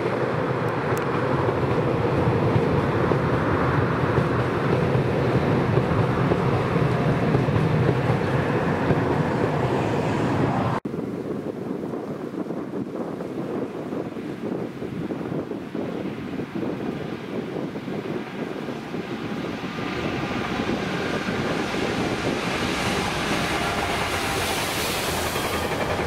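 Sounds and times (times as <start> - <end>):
train wheels on track: 0.0 - 10.8, 17.5 - 26.0.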